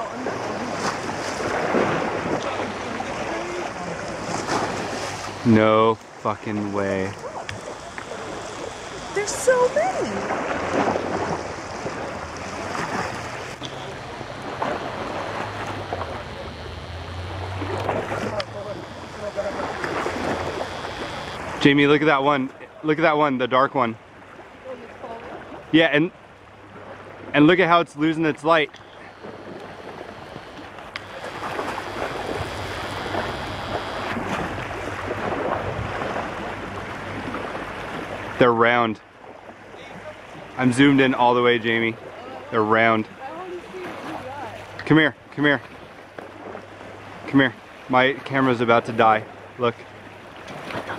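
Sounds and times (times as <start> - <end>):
rushing outdoor background noise: 0.0 - 23.0, 27.3 - 39.1
low steady hum: 2.4 - 24.0, 25.8 - 38.4
faint low hum: 12.8 - 22.2, 27.4 - 35.0
faint voices: 13.1 - 21.8.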